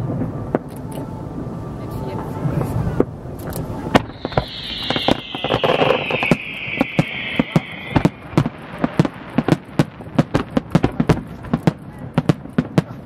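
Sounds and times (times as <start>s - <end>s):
fireworks bangs and crackles: 2.6s - 13.0s
descending firework whistle: 3.6s - 10.0s.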